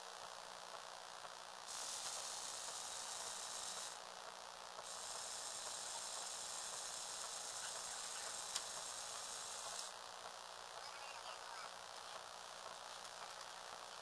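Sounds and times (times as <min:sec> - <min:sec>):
small electric motor whirring: 0:01.6 - 0:04.1, 0:04.8 - 0:10.0.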